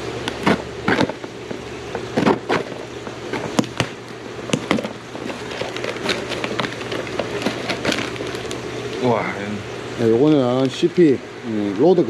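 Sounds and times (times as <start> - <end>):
plastic packaging rustling: 0.2 - 9.0.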